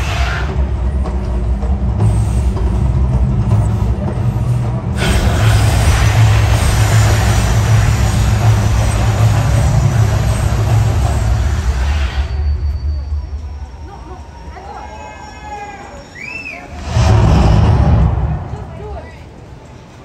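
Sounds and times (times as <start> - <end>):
rushing noise: 0.0 - 14.6, 16.2 - 20.0
gas flame bursts: 5.0 - 12.6, 16.7 - 19.0
deep rumble: 16.7 - 20.0.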